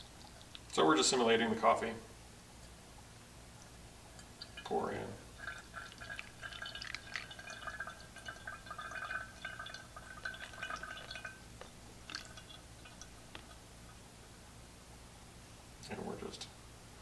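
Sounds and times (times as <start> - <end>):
water trickling and splashing: 4.2 - 13.6.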